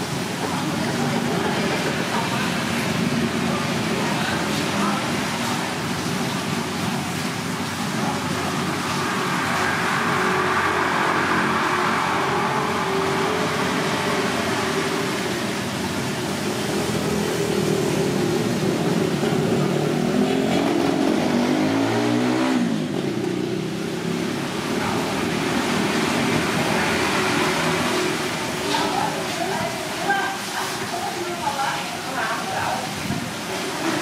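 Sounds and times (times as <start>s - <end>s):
vehicle passing by: 8.0s - 29.2s.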